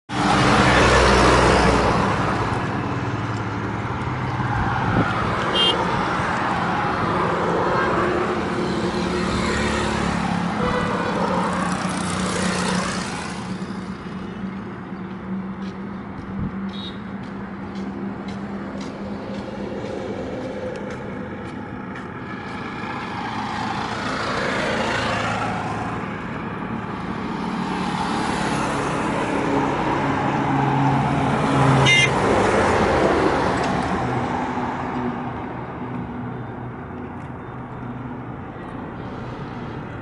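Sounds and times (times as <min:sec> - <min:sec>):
highway traffic passing: 0:00.0 - 0:40.0.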